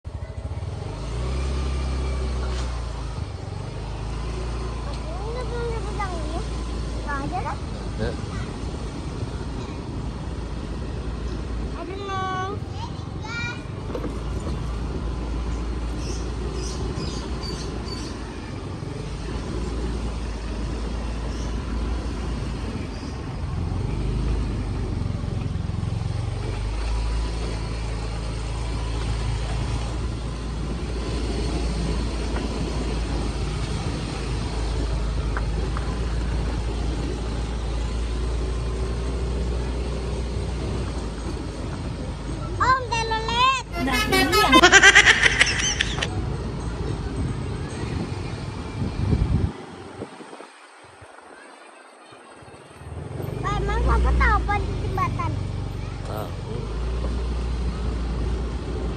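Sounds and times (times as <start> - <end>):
wind rushing over microphone: 47.9 - 51.4.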